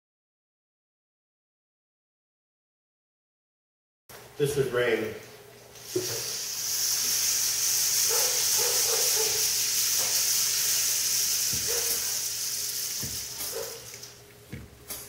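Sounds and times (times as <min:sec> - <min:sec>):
rain stick trickling: 0:05.8 - 0:14.2.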